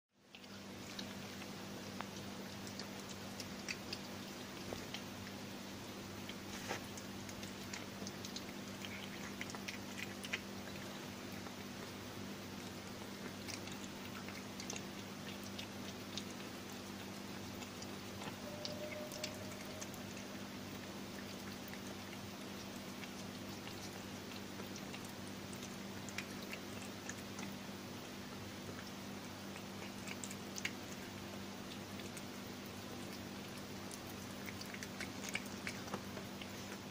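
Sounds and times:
cat chewing: 0.2s - 36.9s
low hum: 0.5s - 25.0s.

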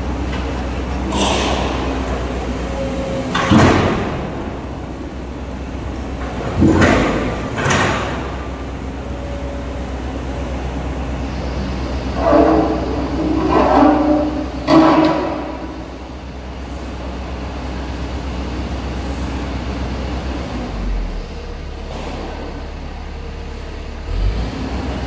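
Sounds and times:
excavator diesel engine running: 0.0s - 25.0s
metal crashes and scraping: 1.0s - 5.0s, 6.2s - 8.6s, 12.0s - 16.1s
metal grinding: 11.9s - 16.1s.

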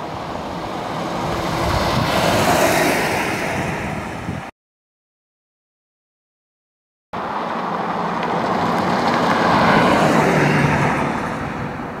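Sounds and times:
car passing on gravel road: 0.0s - 4.3s, 7.2s - 12.0s.

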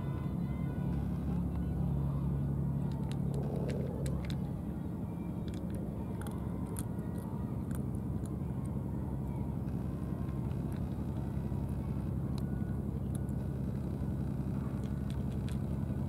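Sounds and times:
steady low hum: 0.0s - 16.0s
cat chewing food: 2.9s - 4.5s, 5.4s - 8.4s, 14.3s - 16.0s.

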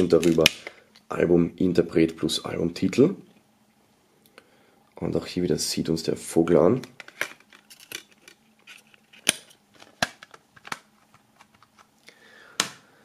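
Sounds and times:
plastic cd case clicks: 0.2s - 0.8s, 9.1s - 11.9s, 12.6s - 12.8s
plastic case handled: 6.8s - 12.0s.

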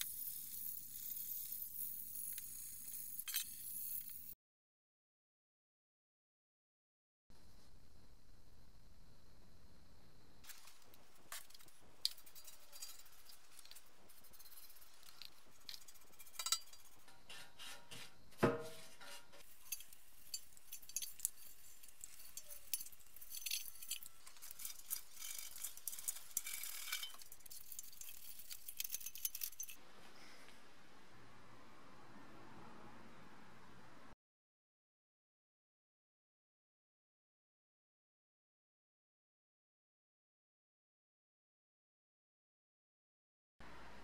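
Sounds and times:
light clinks and clicks: 19.6s - 29.8s.

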